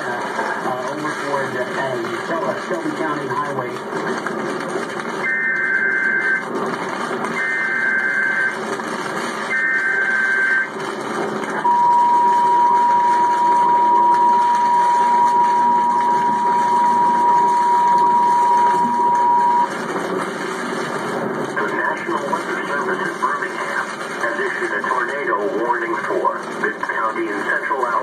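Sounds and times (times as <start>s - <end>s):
long steady alert tone: 5.2s - 6.4s, 7.4s - 8.6s, 9.5s - 10.7s, 11.6s - 19.7s
two-tone data bursts: 5.2s - 6.5s, 7.3s - 8.7s, 9.3s - 10.8s, 11.6s - 19.8s.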